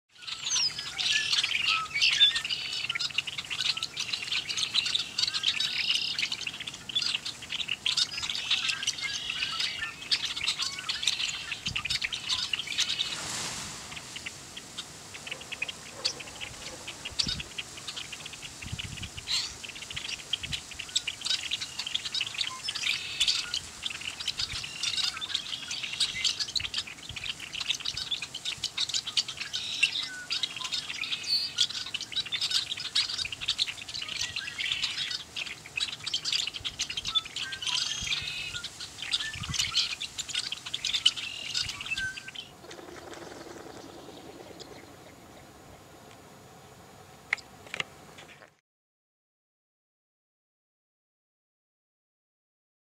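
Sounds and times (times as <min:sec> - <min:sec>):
flock of blackbirds calling: 0:00.1 - 0:46.2
brief rush of noise: 0:12.8 - 0:14.6.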